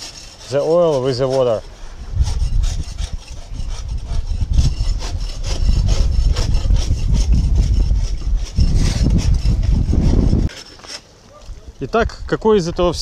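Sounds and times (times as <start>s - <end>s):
rapid scraping strokes: 0.0s - 11.2s
wind rumble on microphone: 1.9s - 10.5s.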